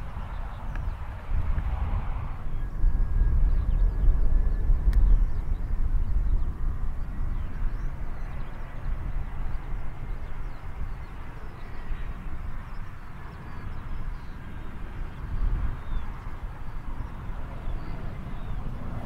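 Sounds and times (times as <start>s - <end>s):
jet engines rumbling: 0.0s - 19.0s.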